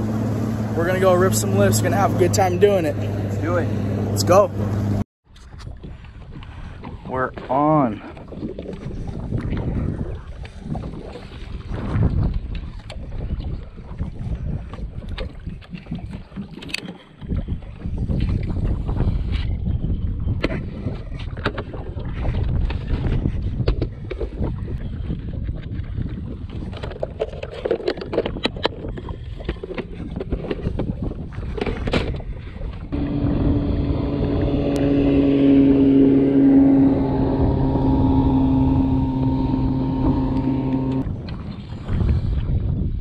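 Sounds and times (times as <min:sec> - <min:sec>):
wind rumble on microphone: 0:00.0 - 0:43.0
steady motor hum: 0:32.9 - 0:41.0.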